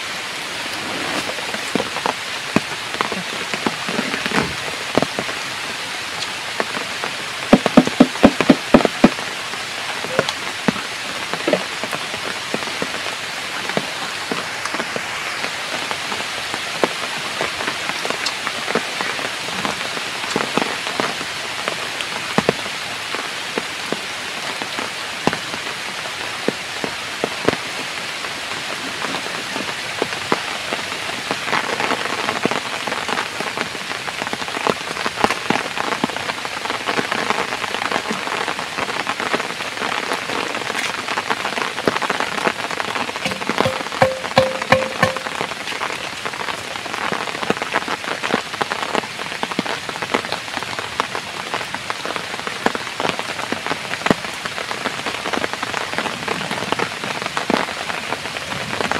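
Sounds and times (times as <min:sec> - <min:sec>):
heavy rain: 0:00.0 - 0:58.9
raindrops ticking on surfaces: 0:00.0 - 0:58.9
steady tone: 0:43.3 - 0:45.5.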